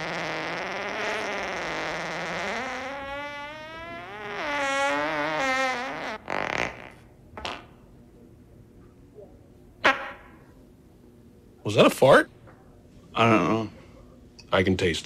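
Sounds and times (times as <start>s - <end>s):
person farting: 0.0s - 7.7s, 9.8s - 10.3s.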